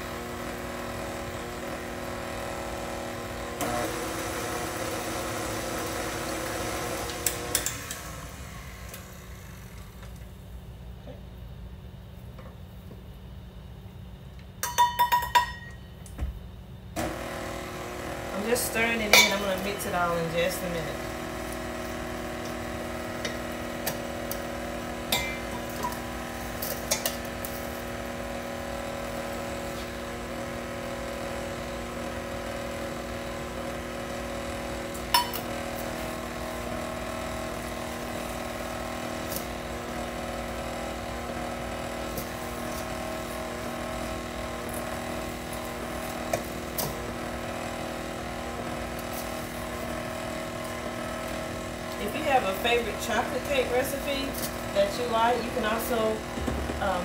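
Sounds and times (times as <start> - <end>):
stand mixer motor running: 0.0 - 10.0, 17.0 - 57.0
measuring cup clinking in metal bowl: 14.6 - 15.8.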